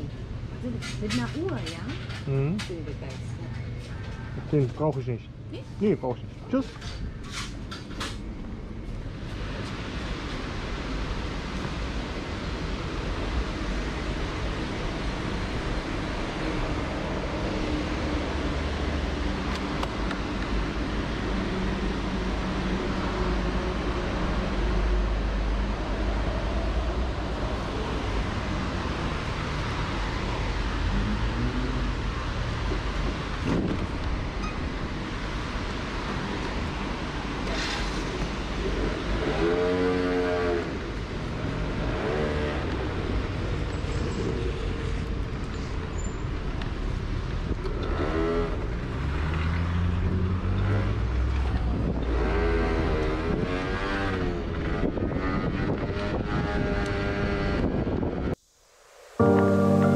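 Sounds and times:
outdoor traffic noise: 0:00.0 - 0:59.9
wind rumble on microphone: 0:23.8 - 0:37.4, 0:49.9 - 0:58.5.

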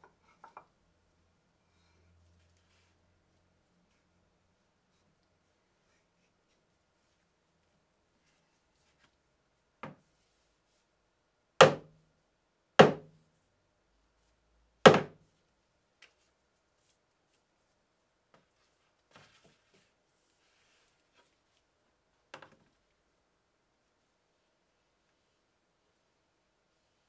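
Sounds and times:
wooden mallet knocking on workbench: 0:12.8 - 0:13.1, 0:14.9 - 0:15.2.

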